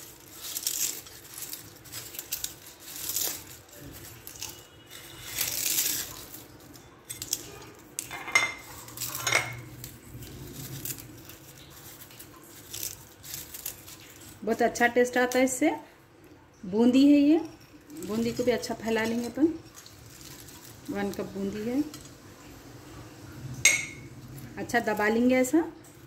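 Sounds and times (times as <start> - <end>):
crisp pastry crunching: 0.0 - 15.6, 16.9 - 23.0
glass clinks: 23.7 - 24.0.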